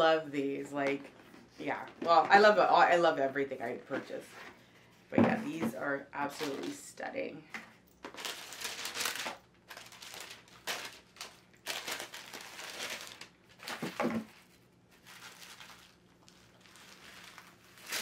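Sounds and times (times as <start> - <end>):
tissue paper rustling: 8.1 - 18.0.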